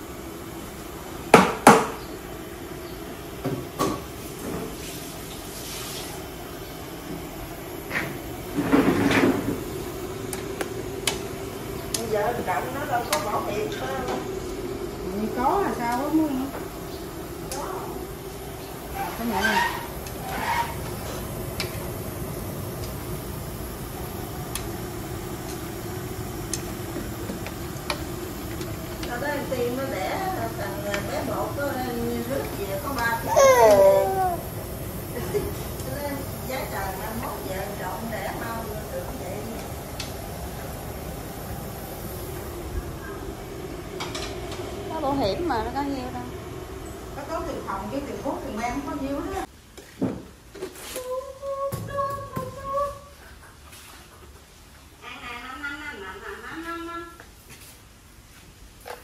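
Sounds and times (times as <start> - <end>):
gas stove hiss: 0.0 - 53.2
steady low hum: 6.2 - 49.5
clattering scrape: 19.2 - 21.2.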